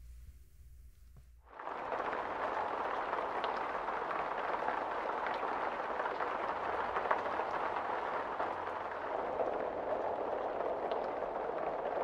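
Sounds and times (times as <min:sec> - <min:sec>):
heavy rain on pavement: 0:01.5 - 0:12.0
raindrop ticks: 0:05.2 - 0:12.0.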